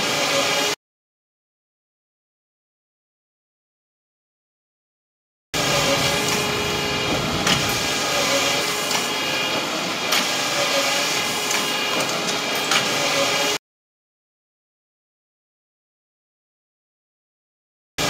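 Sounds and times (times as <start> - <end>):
production line machinery whirring: 0.0 - 0.8, 5.6 - 13.6.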